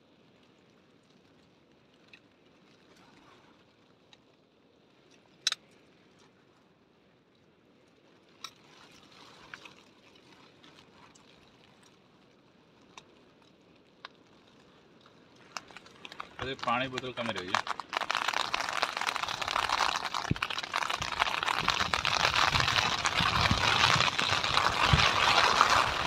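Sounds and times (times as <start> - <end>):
rain: 0.0 - 26.0.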